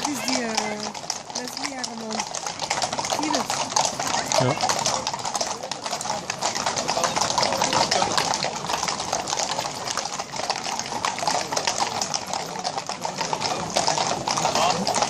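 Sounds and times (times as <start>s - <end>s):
hooves clip-clopping on asphalt: 0.0s - 15.0s.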